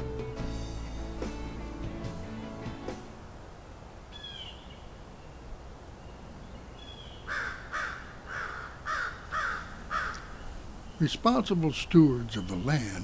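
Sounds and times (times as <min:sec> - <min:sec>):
crow cawing: 0:07.3 - 0:10.5.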